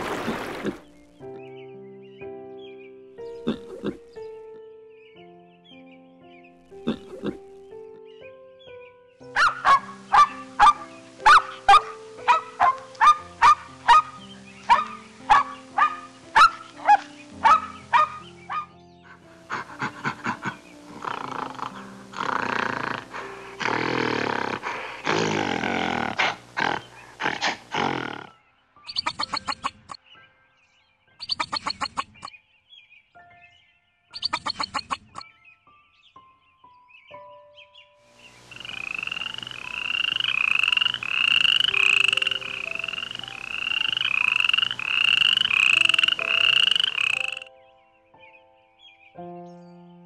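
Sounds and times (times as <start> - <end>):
background music: 0.0 - 50.0
frog trilling calls: 3.4 - 4.1, 6.8 - 7.6, 9.4 - 18.7, 19.5 - 28.3, 28.9 - 30.0, 31.2 - 32.3, 34.2 - 35.2, 38.3 - 47.5
harsh rasping animal roars: 19.5 - 28.3.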